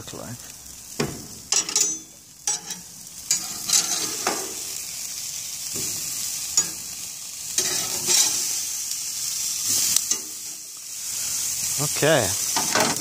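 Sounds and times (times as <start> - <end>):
burgers sizzling on a grill: 0.0 - 13.0
metal spatula scraping grates: 2.5 - 4.4, 7.6 - 8.5.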